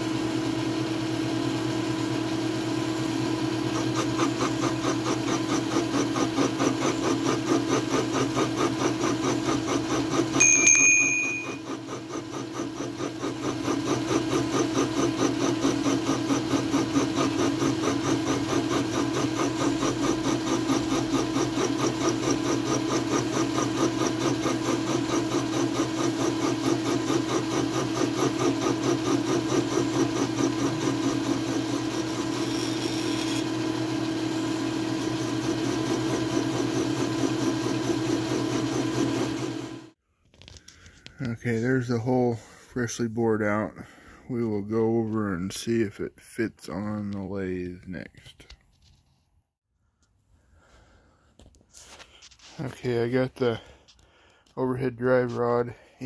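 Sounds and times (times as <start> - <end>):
milling machine humming: 0.0 - 40.0
high ringing tone: 10.4 - 11.7.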